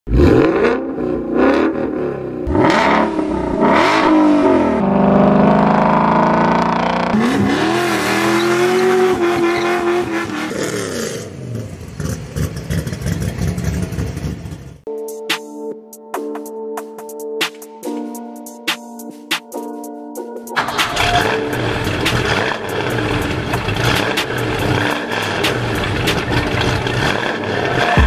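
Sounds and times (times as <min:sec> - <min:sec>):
car engine revving: 0:00.1 - 0:14.8, 0:20.6 - 0:28.0.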